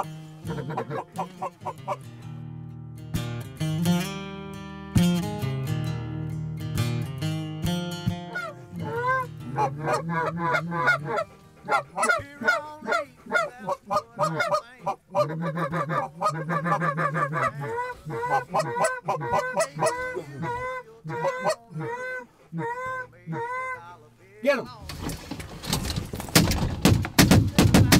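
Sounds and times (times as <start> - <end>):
geese honking: 0.0 - 2.1, 8.3 - 24.2.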